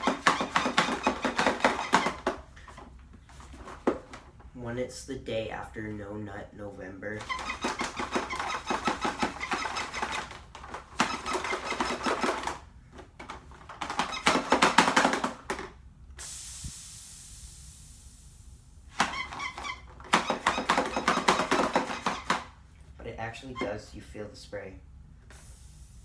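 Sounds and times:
hiss of spray: 16.2 - 18.6, 25.3 - 26.0.

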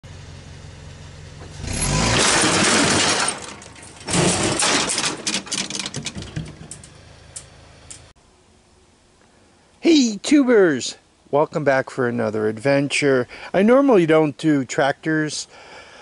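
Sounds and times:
lawn tractor rumbling on gravel: 0.0 - 8.1
ramp clattering down: 1.4 - 8.1
clicks and rattles: 2.1 - 8.1.

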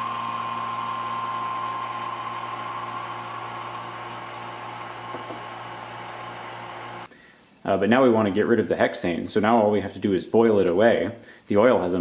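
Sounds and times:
vacuum pump hum and whine: 0.0 - 7.1.

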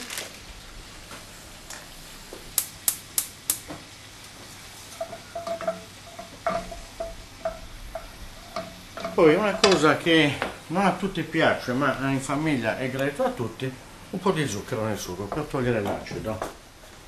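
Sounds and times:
faint sizzle: 0.0 - 17.0
spoon stirring and scraping pot: 4.8 - 10.6.

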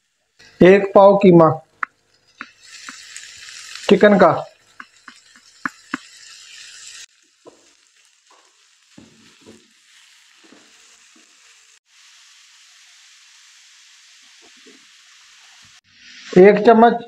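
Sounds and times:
food sizzling in oil: 0.0 - 17.0
spoon stirring and scraping pan: 1.7 - 11.7.

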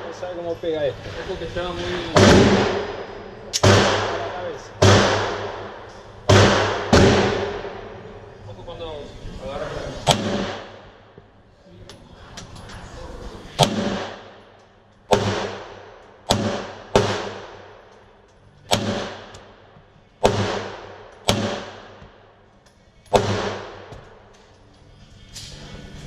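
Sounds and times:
pistol shots echoing: 3.6 - 7.8, 10.1 - 10.8, 13.6 - 14.4, 15.1 - 18.0, 18.6 - 22.4, 23.0 - 24.2.

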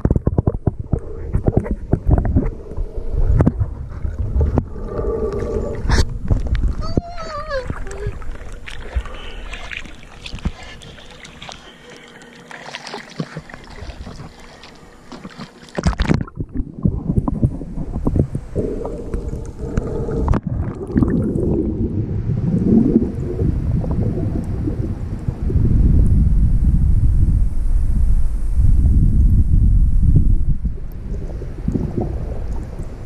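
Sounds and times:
water splashing and lapping: 0.0 - 25.5
muffled underwater rumble and gurgling: 0.0 - 33.0.

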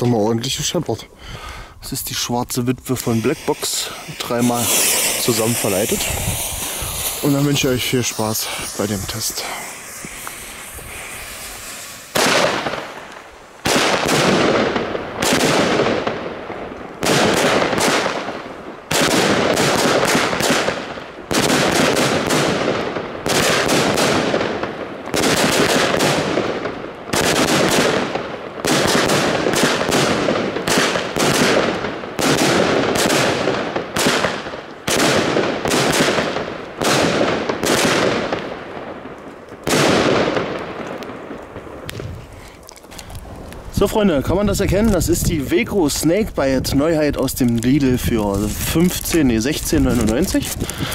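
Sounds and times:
firework shots: 2.1 - 50.9
fuse hissing: 2.8 - 13.6.

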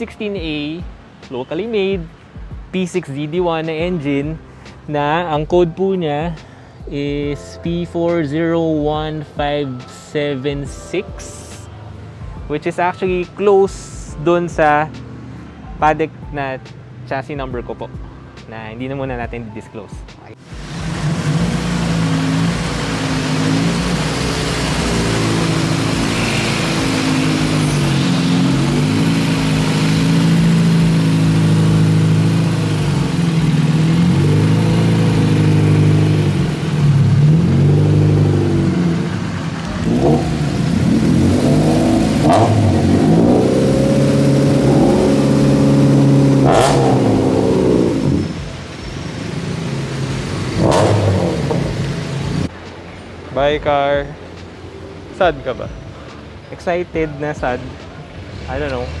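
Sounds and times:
car engines revving: 20.3 - 59.0.

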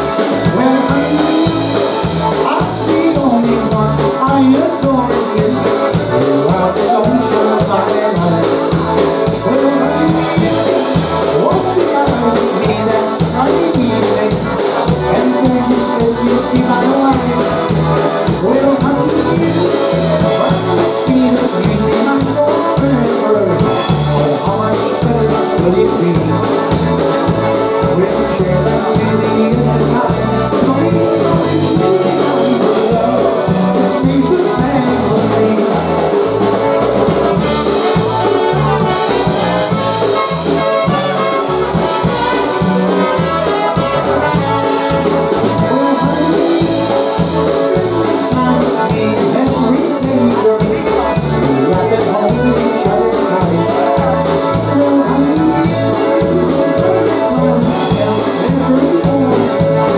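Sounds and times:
brass melody: 0.0 - 59.9
oom-pah bass beat: 0.0 - 59.9
polka band playing: 0.0 - 59.9.

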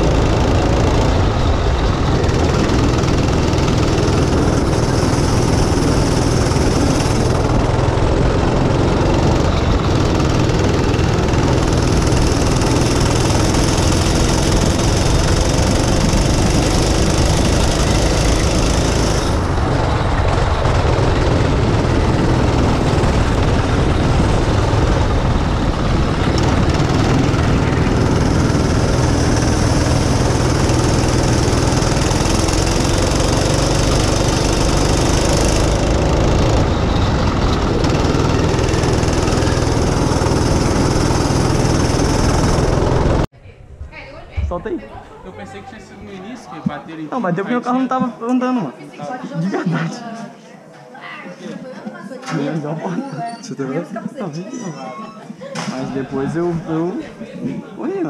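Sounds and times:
wind rushing over microphone: 0.0 - 32.4
go-kart engine revving: 0.0 - 43.3, 55.6 - 57.6.

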